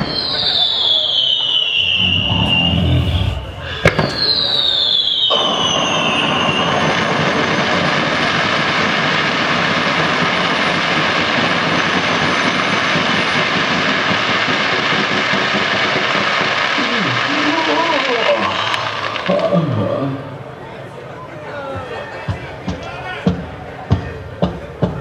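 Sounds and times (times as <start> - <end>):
firework whistle sliding down: 0.0 - 7.6
firework fountain hissing: 0.0 - 20.6.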